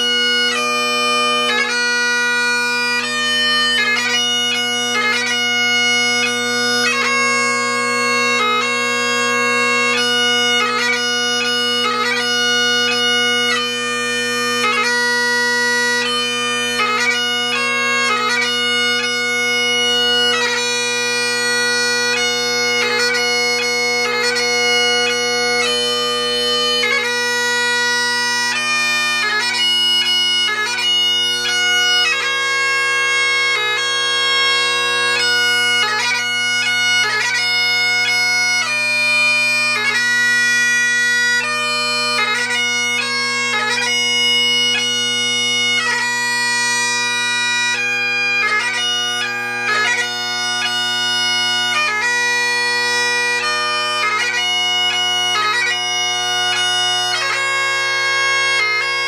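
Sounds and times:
solo bagpipe melody: 0.0s - 59.0s.

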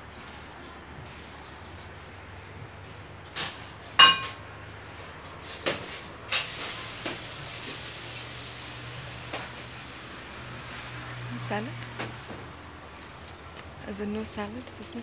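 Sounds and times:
crockery clinking and knocking: 4.0s - 4.4s
steady hiss: 6.2s - 11.3s.

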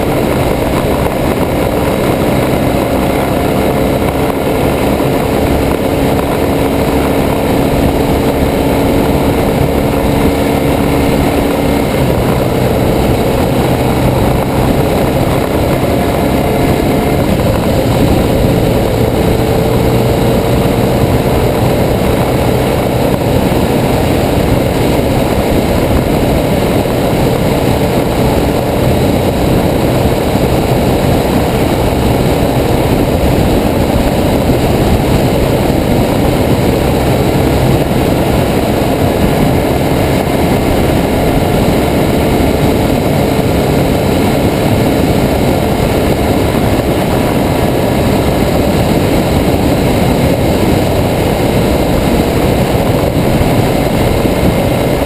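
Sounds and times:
motorcycle engine cruising: 0.0s - 55.0s
wind rush: 0.0s - 55.0s.

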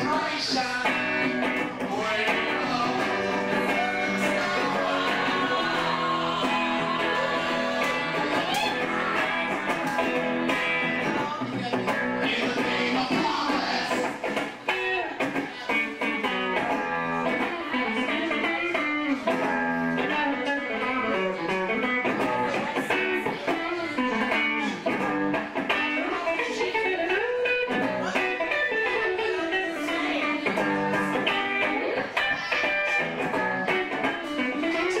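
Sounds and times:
bluesy electric guitar lead: 0.0s - 35.0s.

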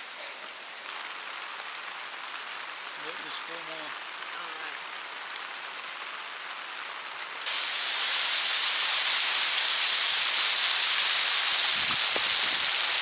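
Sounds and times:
water splashing onto dirt: 7.4s - 13.0s.

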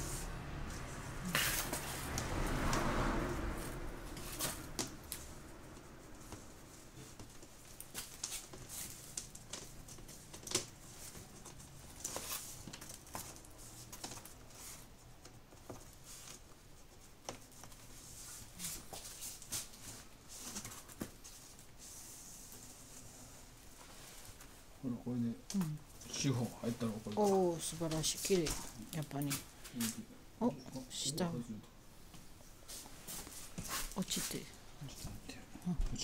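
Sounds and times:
rustling: 0.0s - 24.8s.

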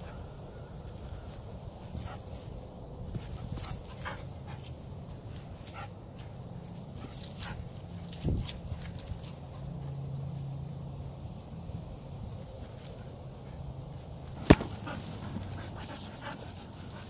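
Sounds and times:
dog panting: 14.5s - 17.0s.

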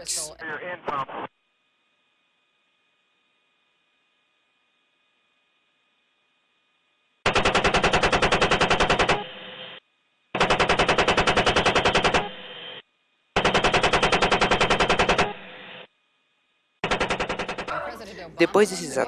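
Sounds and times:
automatic gunfire bursts: 7.3s - 9.3s, 10.4s - 12.3s, 13.4s - 15.4s, 16.8s - 17.8s.

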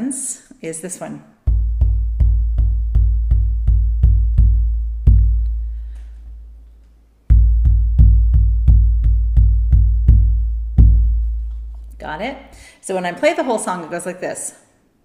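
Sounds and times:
deep hand drum beating: 1.4s - 12.6s.

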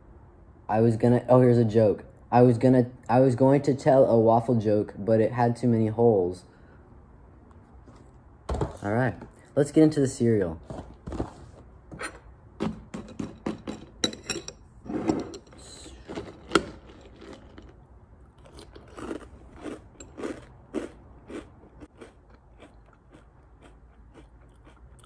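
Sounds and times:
loud crunchy chewing: 18.4s - 25.0s.

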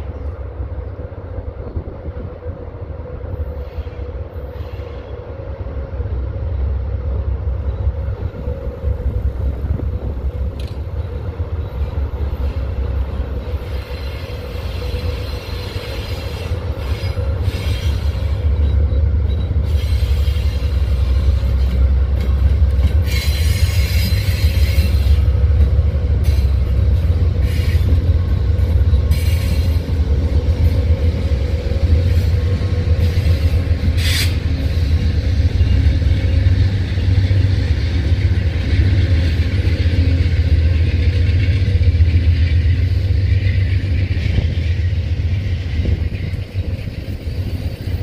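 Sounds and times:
diesel locomotive rumble: 0.0s - 48.0s.

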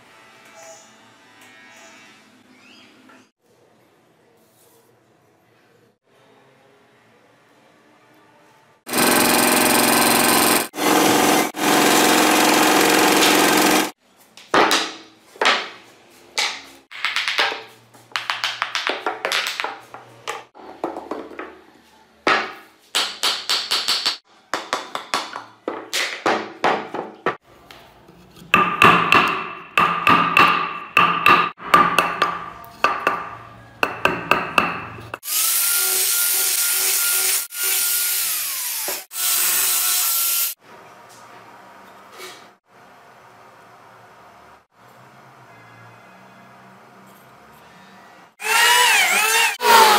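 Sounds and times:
bandsaw cutting wood: 8.9s - 14.0s, 35.2s - 40.6s, 48.4s - 49.9s
power tool biting into wood: 8.9s - 14.0s, 48.4s - 49.9s
angle grinder sanding wood: 48.4s - 49.9s.

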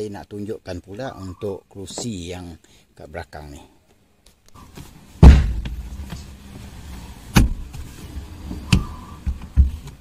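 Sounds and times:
heavy seat thump: 5.2s - 6.3s.

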